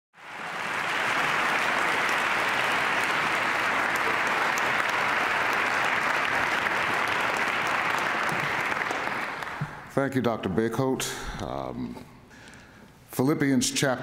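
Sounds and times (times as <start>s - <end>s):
audience applauding: 0.2s - 10.1s.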